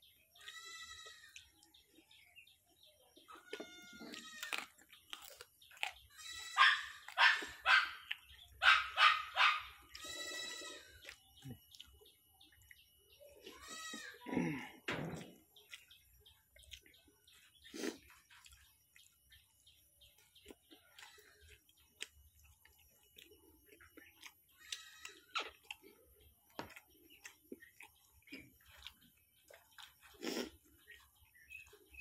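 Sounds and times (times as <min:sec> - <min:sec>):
drawn-out pitched animal calls: 0:06.2 - 0:07.9, 0:08.6 - 0:11.1.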